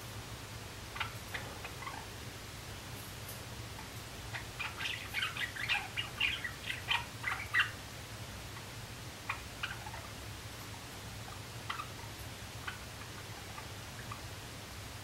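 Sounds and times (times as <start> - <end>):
sparrow chirping and clicking: 4.3 - 7.8.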